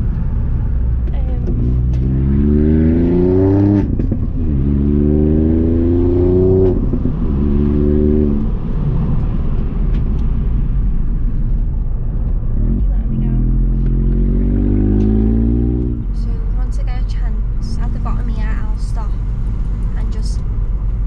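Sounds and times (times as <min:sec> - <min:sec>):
exhaust crack on upshift: 0:00.0 - 0:16.6
car engine accelerating: 0:00.0 - 0:21.0.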